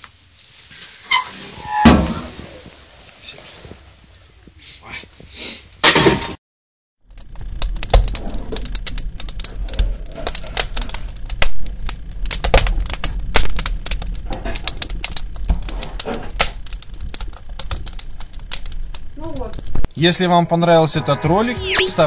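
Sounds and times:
firewood crackling and popping: 7.0 - 19.9.

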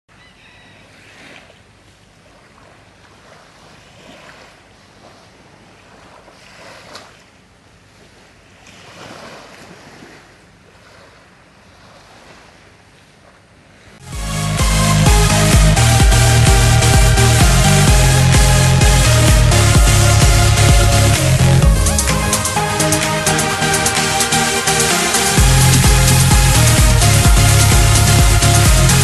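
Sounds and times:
small waves washing on sand: 0.9 - 14.0.

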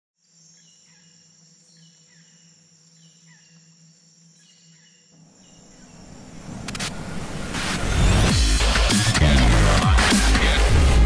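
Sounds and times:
high insect trill: 0.2 - 6.6.

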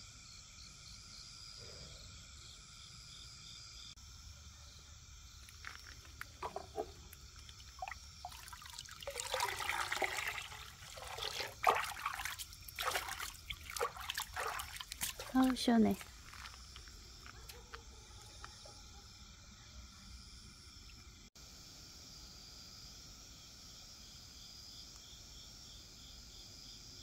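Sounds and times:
crickets chirping: 0.0 - 27.0
water splashing and trickling: 5.5 - 17.0.

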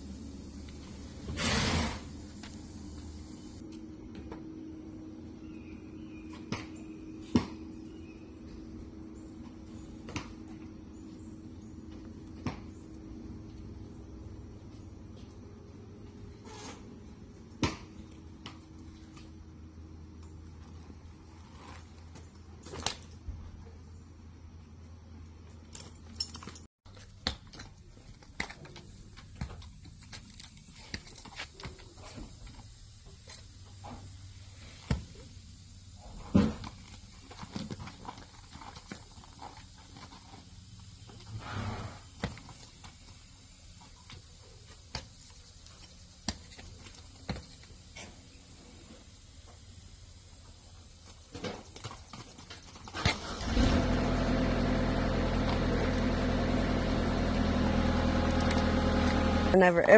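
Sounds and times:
metal clinks of saddle hardware: 25.4 - 27.8.

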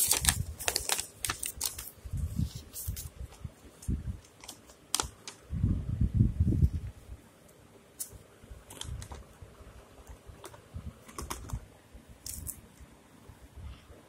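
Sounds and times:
small plastic items clicking: 4.2 - 5.4, 12.2 - 12.6.

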